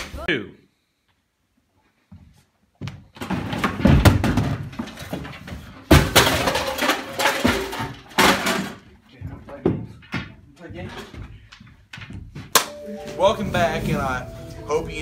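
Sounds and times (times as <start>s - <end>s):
props thumping and clattering: 2.8s - 12.6s.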